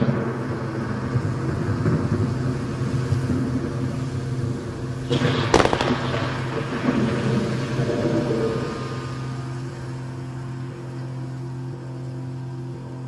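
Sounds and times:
fireworks crackling pops: 0.0 - 8.8
low rumble: 0.0 - 13.0.

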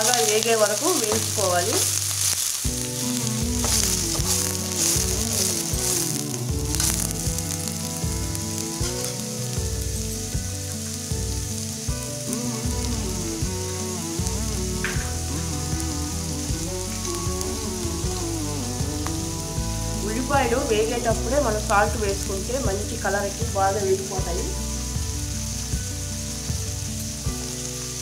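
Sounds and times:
onions sizzling in hot oil: 0.0 - 28.0.

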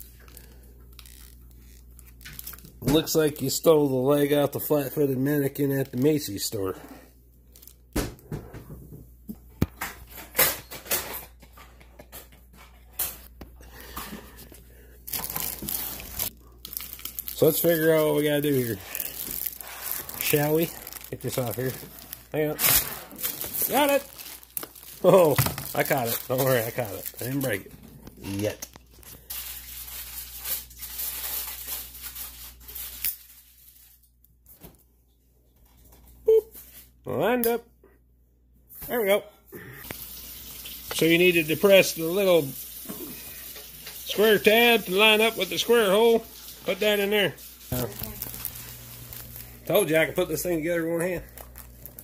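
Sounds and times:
plastic wrapping rustling: 0.0 - 6.6, 13.7 - 34.2, 39.9 - 52.0.

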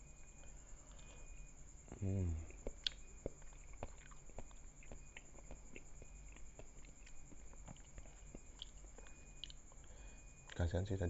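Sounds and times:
person chewing: 2.4 - 10.6.

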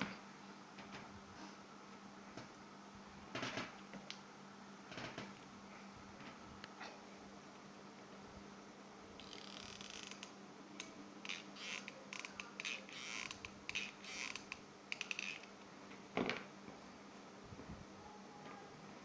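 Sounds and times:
glue gun creaks and crackles: 9.2 - 15.6.

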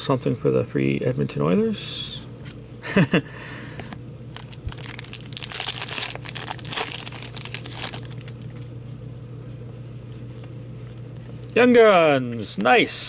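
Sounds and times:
foil wrapper crinkling and tearing: 4.3 - 8.6
cards rustling: 4.4 - 8.6.

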